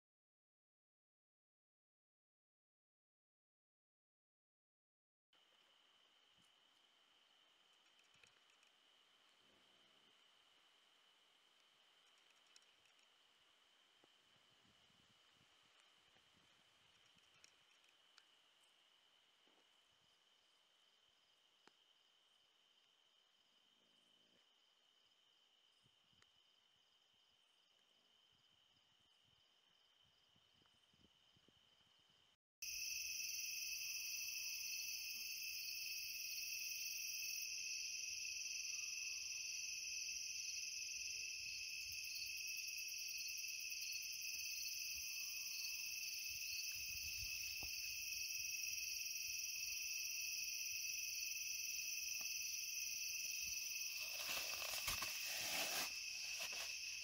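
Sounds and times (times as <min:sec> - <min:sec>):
crickets trilling: 0:32.6 - 0:57.0.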